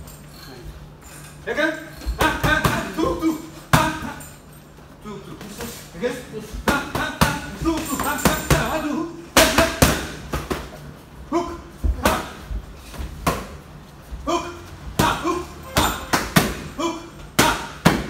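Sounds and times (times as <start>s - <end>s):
short vocal bursts: 14.2s - 17.7s
boxing gloves smacking mitts: 15.0s - 16.8s.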